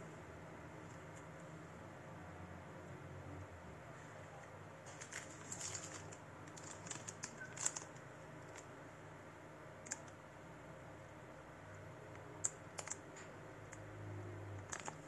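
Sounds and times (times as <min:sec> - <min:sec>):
rustling cardboard and paper: 0:04.8 - 0:08.7
small clicks: 0:11.7 - 0:13.8.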